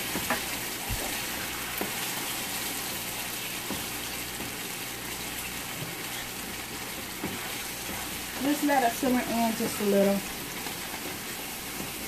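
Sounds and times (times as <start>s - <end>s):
spatula tapping pan: 0.0s - 1.2s, 3.6s - 4.7s, 5.7s - 12.0s
sausage sizzling in a frying pan: 0.0s - 12.0s.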